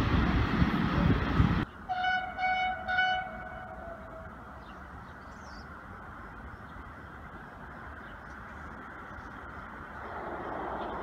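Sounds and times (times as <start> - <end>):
train horn toots: 1.9 - 4.3.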